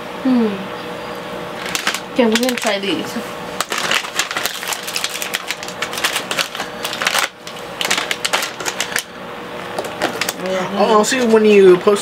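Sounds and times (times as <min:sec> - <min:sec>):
plastic snack bag crinkling: 0:01.6 - 0:02.9, 0:03.6 - 0:11.4.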